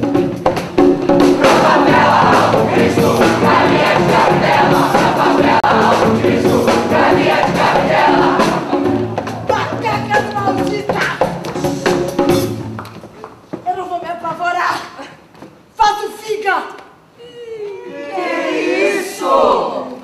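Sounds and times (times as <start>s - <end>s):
music: 0.0s - 13.4s
crowd singing together: 1.1s - 9.5s, 17.9s - 20.0s.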